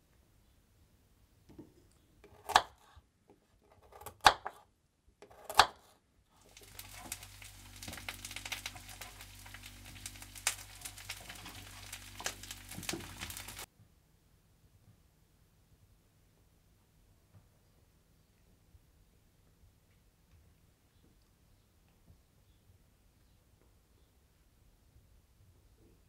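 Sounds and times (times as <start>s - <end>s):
knife slicing on a board: 2.2s - 3.0s, 3.6s - 4.6s, 5.2s - 6.0s
crackling hiss: 6.4s - 13.7s
low hum: 6.5s - 13.7s.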